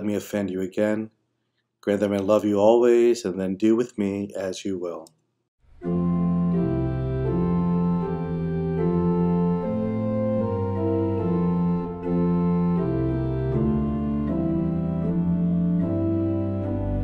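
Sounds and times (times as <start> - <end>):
organ playing held chords: 5.7 - 17.0.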